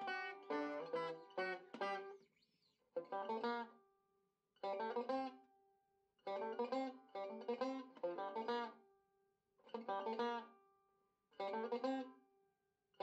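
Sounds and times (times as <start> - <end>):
plucked string instrument: 0.0 - 2.2, 3.0 - 3.7, 4.6 - 5.4, 6.3 - 8.8, 9.7 - 10.5, 11.4 - 12.1.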